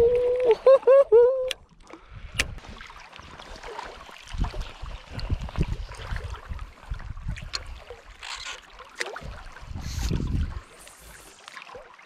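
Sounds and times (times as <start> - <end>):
faint hiss of moving water: 1.8 - 12.0
wind rumble on microphone: 4.2 - 8.4, 9.2 - 11.2.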